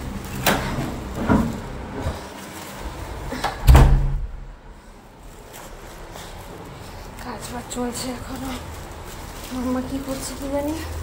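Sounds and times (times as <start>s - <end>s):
heavy door thud: 3.4s - 4.6s.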